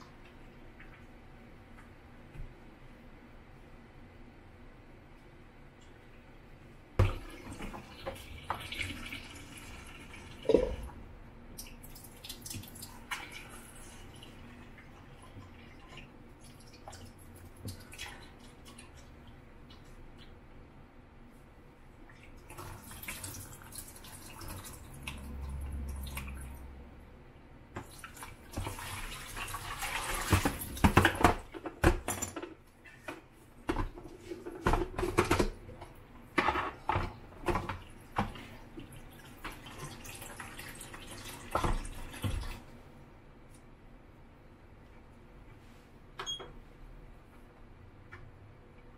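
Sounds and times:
tap water running into tank: 7.0 - 11.0, 22.3 - 26.6, 27.8 - 31.4, 36.4 - 42.6.

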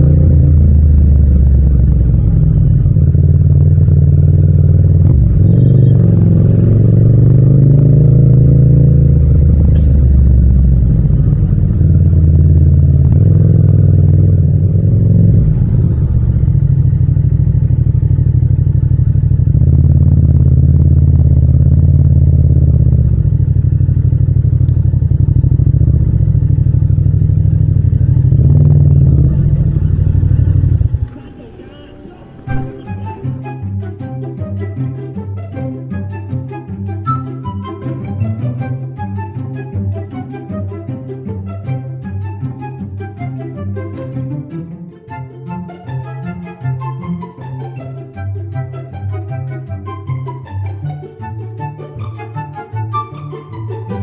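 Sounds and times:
motorcycle engine running: 0.0 - 33.4.

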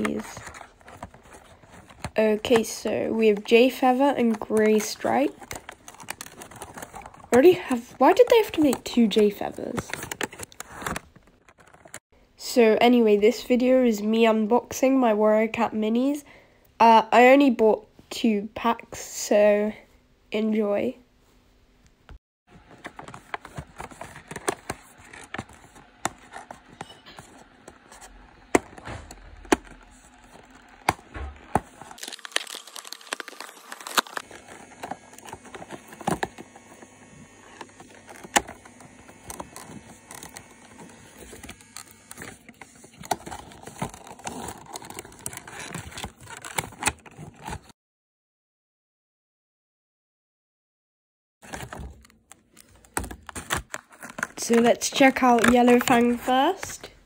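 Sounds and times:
cardboard and plastic crinkling: 0.0 - 12.0, 22.5 - 47.7, 51.4 - 57.0.

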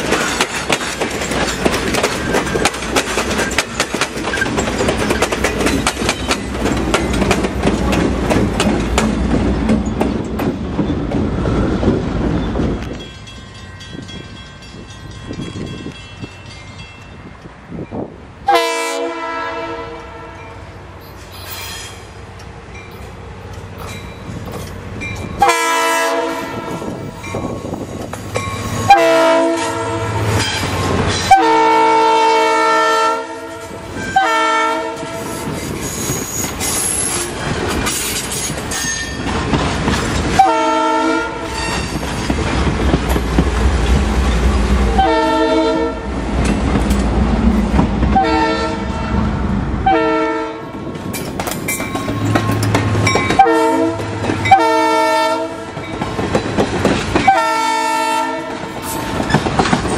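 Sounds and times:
wheels clattering over rail joints: 0.0 - 11.5, 35.3 - 40.4, 50.9 - 54.7, 55.6 - 57.5, 58.5 - 59.9
train rumbling: 0.0 - 59.9
train air horn blasts: 18.4 - 20.6, 25.4 - 27.1, 28.8 - 30.6, 31.2 - 35.5, 40.3 - 42.0, 44.9 - 46.1, 48.1 - 50.7, 53.4 - 55.8, 57.2 - 59.2.

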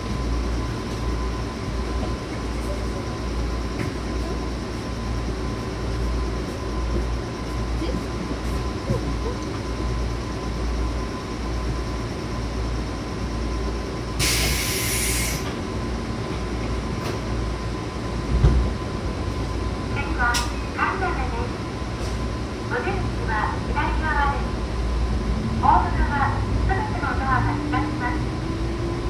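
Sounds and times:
short air hiss: 14.2 - 15.5.

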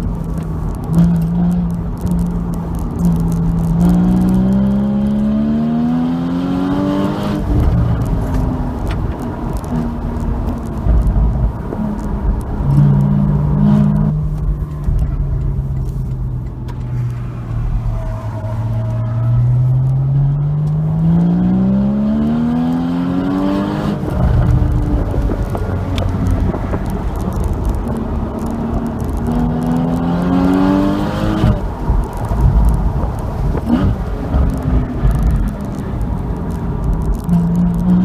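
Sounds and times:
car engine revving: 0.0 - 38.0
road and wind rumble: 0.0 - 38.0.

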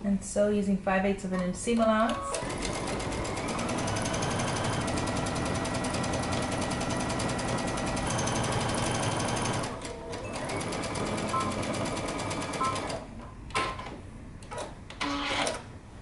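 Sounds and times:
sewing machine stitching: 2.3 - 13.0.

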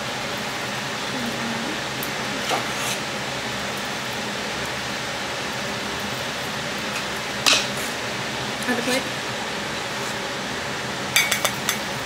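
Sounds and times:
kitchen hiss: 0.9 - 3.8
fork clinking on plate: 11.2 - 11.9.

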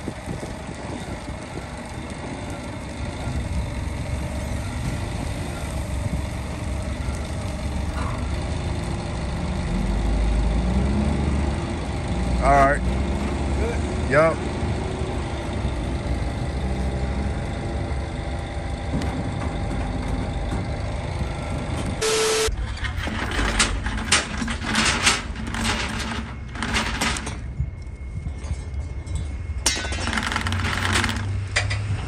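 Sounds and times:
forklift engine running: 0.0 - 28.4, 29.4 - 32.0
steel chains rattling and clanking: 22.6 - 32.0.

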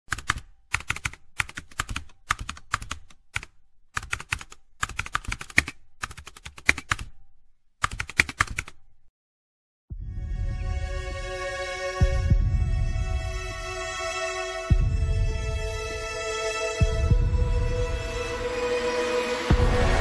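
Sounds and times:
keyboard typing clicks: 0.1 - 7.2, 7.8 - 8.8
music: 9.9 - 20.0.

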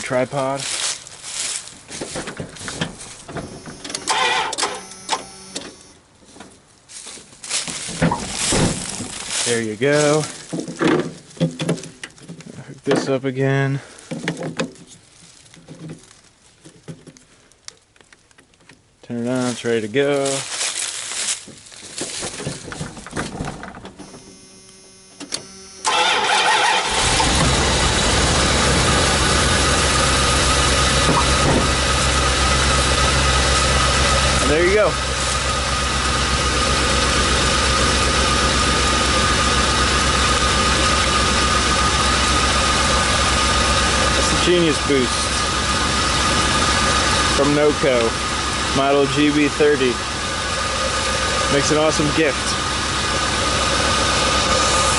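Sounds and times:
van engine cranking and idling: 0.0 - 6.0, 7.4 - 14.8, 21.7 - 54.9
starter solenoid chattering: 3.3 - 5.9, 24.1 - 54.9.

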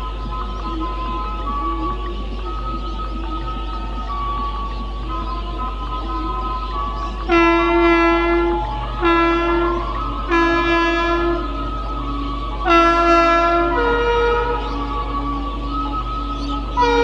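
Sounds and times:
locomotive air horn blasts: 3.4 - 17.0.

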